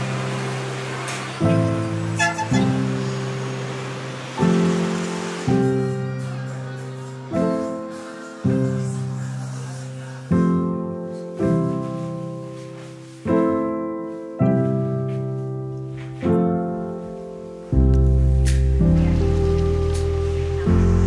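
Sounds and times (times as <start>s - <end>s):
slow piano chords: 0.0s - 21.0s
deep bass note: 17.9s - 21.0s.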